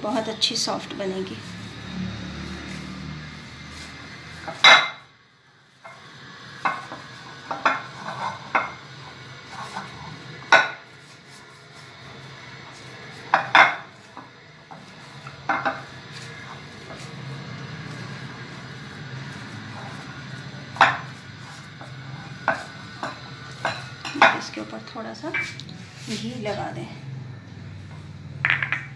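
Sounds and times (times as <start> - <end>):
glass dish knocking on stone: 28.4 - 28.9.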